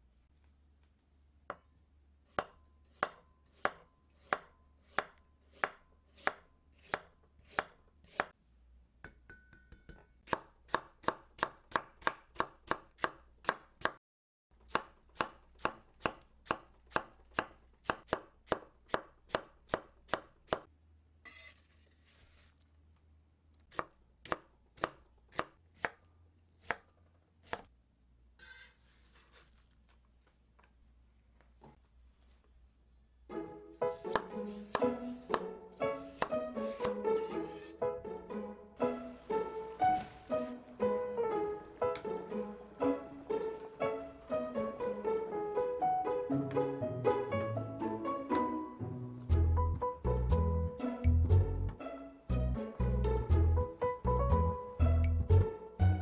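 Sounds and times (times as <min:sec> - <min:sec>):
knife chopping on wooden board: 0:34.1 - 0:35.5.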